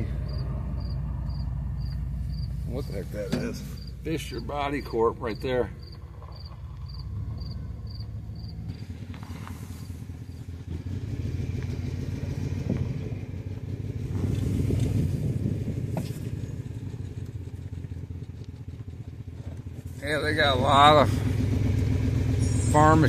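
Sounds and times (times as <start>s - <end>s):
insect chirps: 0.0s - 10.6s
vehicle rumble from on board: 0.0s - 23.0s.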